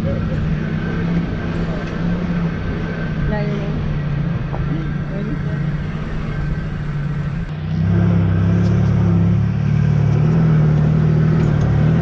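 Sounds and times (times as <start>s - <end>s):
vehicle engine revving: 0.0s - 12.0s.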